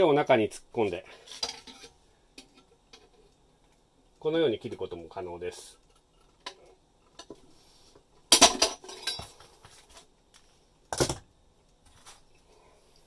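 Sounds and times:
metal clank: 8.3s - 9.4s.

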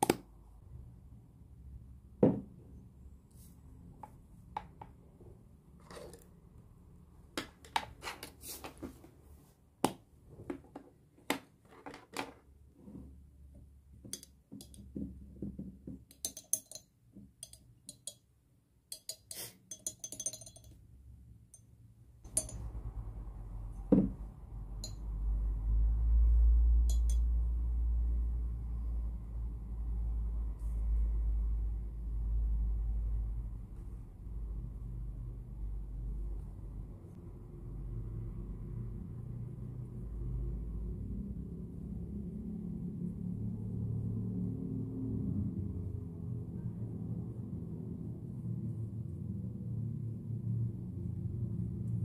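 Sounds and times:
glass jar and tin clinking: 16.1s - 18.2s, 18.9s - 20.8s, 22.3s - 22.7s, 26.9s - 27.2s.

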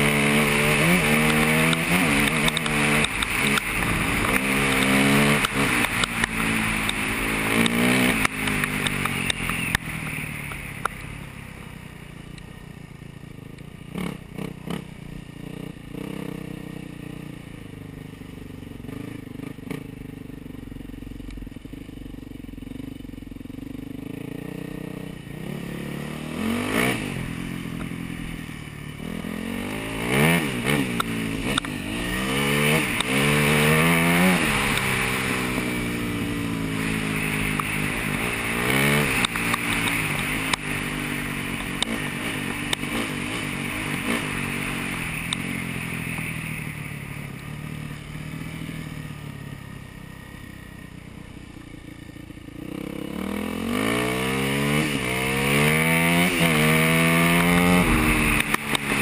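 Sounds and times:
dirt bike engine revving: 0.0s - 11.0s, 24.0s - 49.0s, 52.5s - 59.0s.

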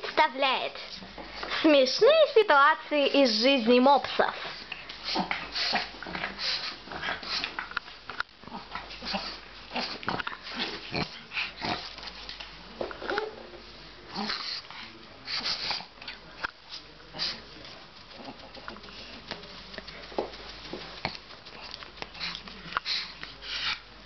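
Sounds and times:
dog breathing and snuffling: 3.2s - 7.8s, 8.5s - 12.4s, 14.1s - 23.9s.

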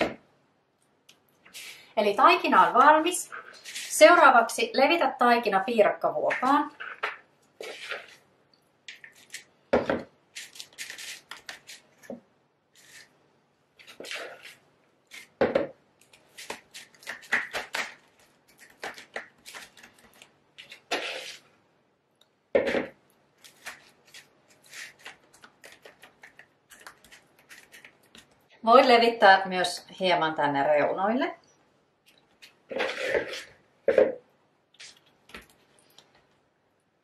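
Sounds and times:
metal spoon scraping a pie dish: 6.7s - 8.2s, 20.8s - 21.4s, 32.7s - 33.6s.

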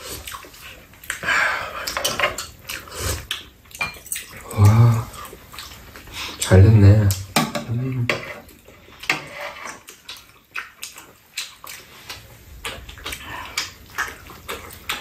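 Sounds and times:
wet chewing and lip-smacking: 0.0s - 6.4s, 9.7s - 15.0s
person speaking: 6.4s - 8.2s.

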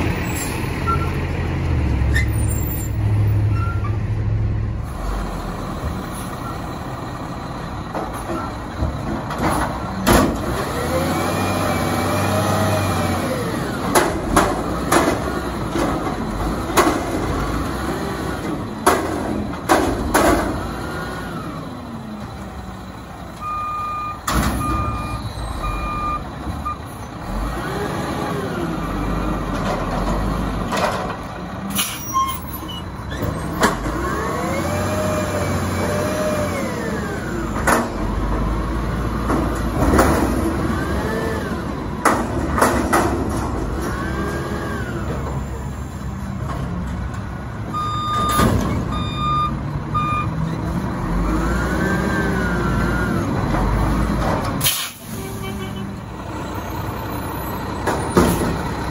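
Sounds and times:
garbage truck engine revving: 4.8s - 23.3s, 24.2s - 58.9s
short beeps: 23.4s - 26.2s, 47.8s - 50.3s.

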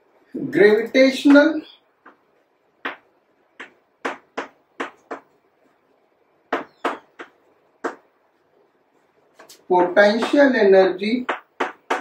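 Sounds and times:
chalk tapping on blackboard: 3.6s - 5.4s, 6.5s - 8.1s, 9.4s - 10.5s, 11.2s - 12.0s.

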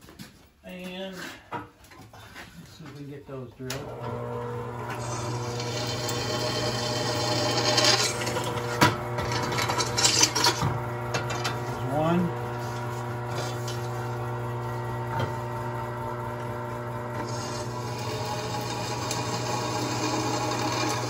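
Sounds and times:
drill press motor running: 3.8s - 21.0s
drill bit grinding through steel: 4.0s - 15.5s, 17.1s - 21.0s.

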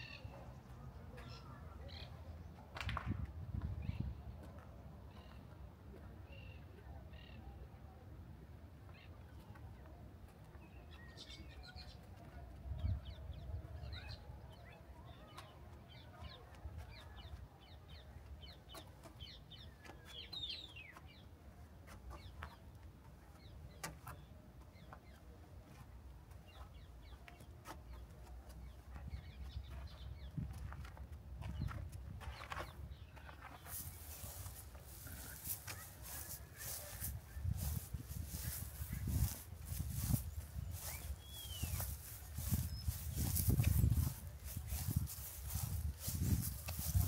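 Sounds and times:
birds chirping: 10.5s - 47.0s.

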